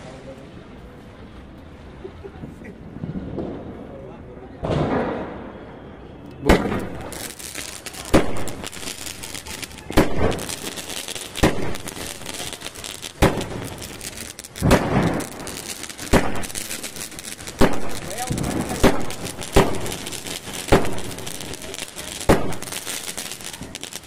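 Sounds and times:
firework bangs: 2.8 - 4.0, 4.6 - 24.0
hiss of sparks: 7.0 - 24.0.

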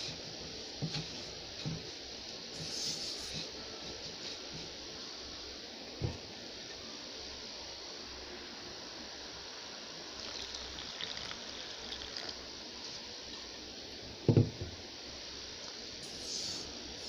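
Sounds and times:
water trickling into flour: 10.1 - 13.7
dull thump: 14.3 - 14.7.

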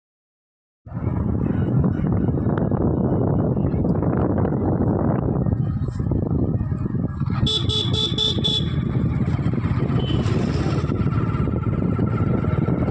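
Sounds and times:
vehicle road noise: 0.9 - 12.9
horn beeps: 7.5 - 8.9, 9.9 - 10.4.

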